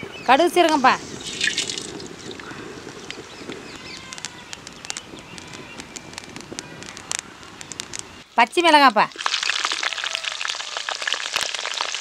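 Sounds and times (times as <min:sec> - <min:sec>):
sharp crackles and pops: 0:00.6 - 0:08.3, 0:09.0 - 0:12.0
seeds sizzling in hot oil: 0:09.1 - 0:12.0.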